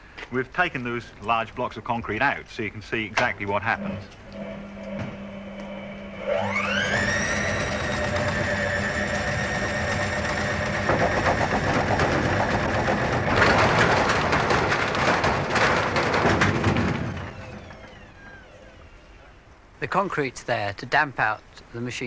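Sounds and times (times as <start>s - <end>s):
washing machine motor whine: 3.3s - 19.7s
washing machine rattling and knocking: 7.6s - 17.6s.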